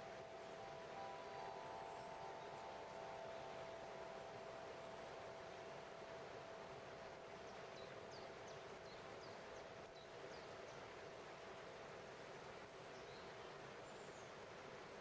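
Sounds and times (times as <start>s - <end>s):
crystal harp ringing tone: 0.0s - 7.3s
waterfall rushing over rocks: 0.0s - 9.2s.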